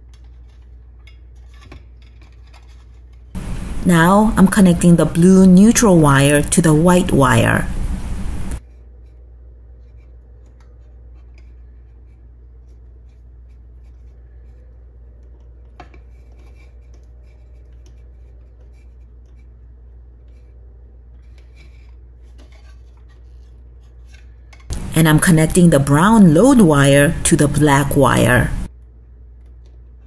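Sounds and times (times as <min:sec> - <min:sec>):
steady low hum: 0:03.4 - 0:08.6, 0:24.7 - 0:28.7.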